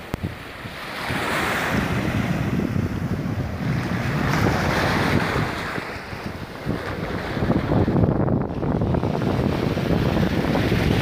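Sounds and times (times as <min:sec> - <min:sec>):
small waves breaking on sand: 0:00.0 - 0:11.0
wind buffeting microphone: 0:00.0 - 0:11.0.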